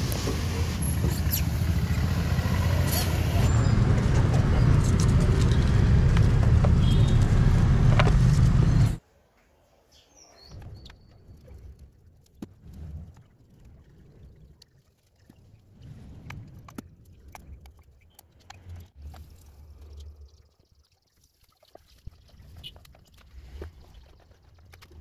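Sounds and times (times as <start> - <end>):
vehicle rumble: 0.0 - 9.0.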